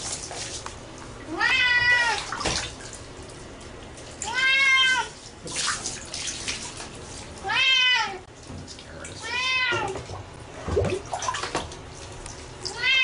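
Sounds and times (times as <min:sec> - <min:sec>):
water splashing from a jug: 0:00.0 - 0:00.8, 0:01.7 - 0:07.6, 0:08.4 - 0:13.0
cat meowing: 0:01.3 - 0:02.3, 0:04.2 - 0:05.1, 0:07.4 - 0:08.2, 0:09.2 - 0:10.0, 0:12.7 - 0:13.0.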